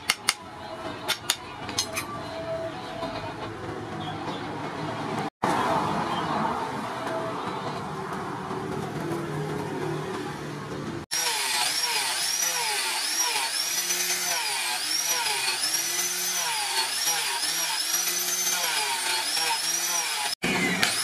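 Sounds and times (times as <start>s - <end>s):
angle grinder sanding wood: 11.1s - 21.0s.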